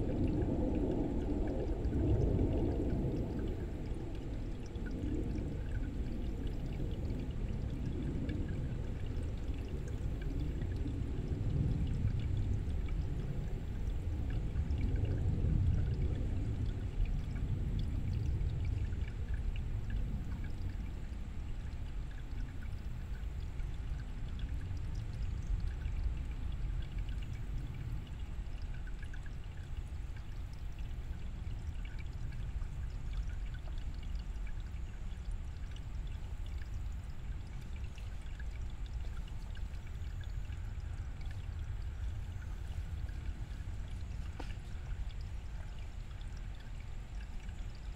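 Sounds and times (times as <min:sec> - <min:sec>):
water bubbling splashes: 0:00.0 - 0:16.8, 0:24.3 - 0:47.9
stream flowing over rocks: 0:19.1 - 0:47.9.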